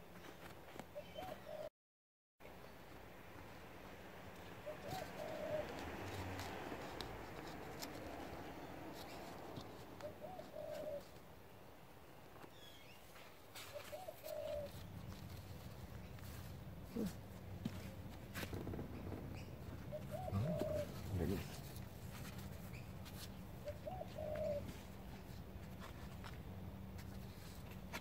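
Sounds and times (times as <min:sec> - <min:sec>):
dove cooing: 0:01.0 - 0:01.7, 0:04.5 - 0:11.2, 0:13.6 - 0:14.9, 0:16.3 - 0:25.9.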